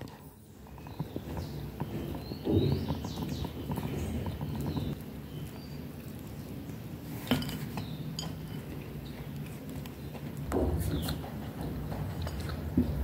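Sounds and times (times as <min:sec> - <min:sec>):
cutlery clinks: 0:07.3 - 0:08.7.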